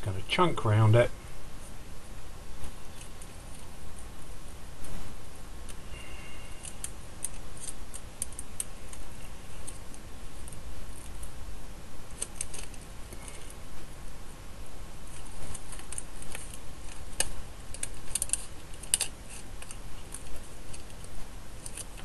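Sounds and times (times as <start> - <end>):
scissors snipping: 15.5 - 22.0.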